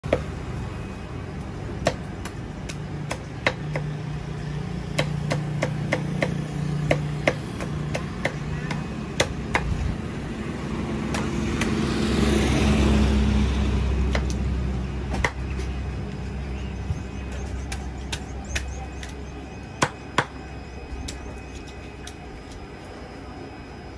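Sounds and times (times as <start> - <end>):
vehicle passing by: 9.8 - 18.8.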